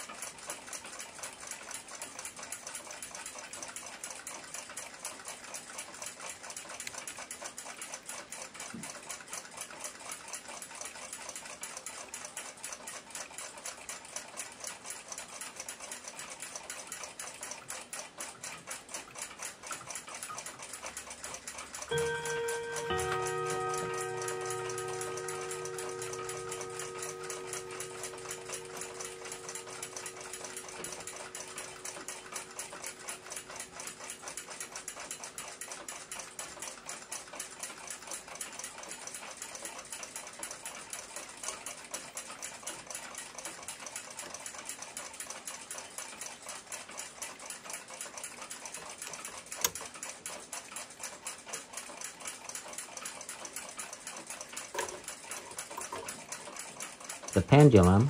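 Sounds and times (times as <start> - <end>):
sharp clock click: 0.0 - 37.3, 49.4 - 50.3
clock ticking rapidly: 0.0 - 47.4, 48.0 - 58.0.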